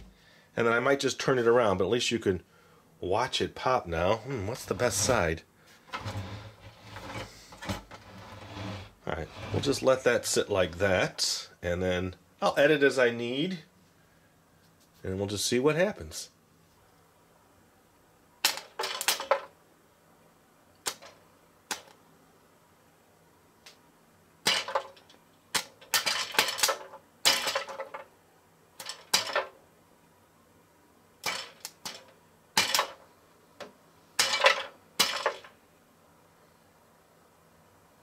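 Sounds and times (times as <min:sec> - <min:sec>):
popcorn popping: 0:18.4 - 0:19.5, 0:24.4 - 0:28.0, 0:28.8 - 0:29.5, 0:31.2 - 0:33.0.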